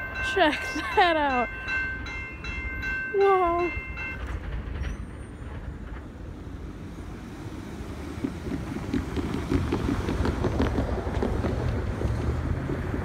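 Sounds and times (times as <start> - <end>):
crossing bell ringing: 0.0 - 5.4
car tyres over a crossing: 7.5 - 13.0.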